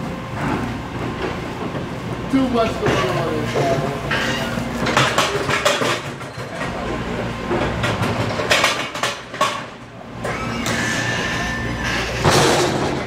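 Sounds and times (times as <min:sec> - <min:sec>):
pallet jack motor hum: 0:00.0 - 0:13.0
knocks and rattles: 0:04.1 - 0:09.8.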